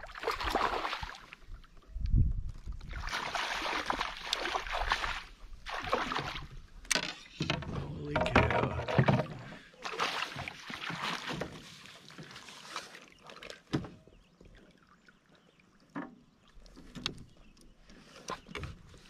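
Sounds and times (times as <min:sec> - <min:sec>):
water splashing and dripping: 0:00.0 - 0:01.6, 0:02.5 - 0:14.8.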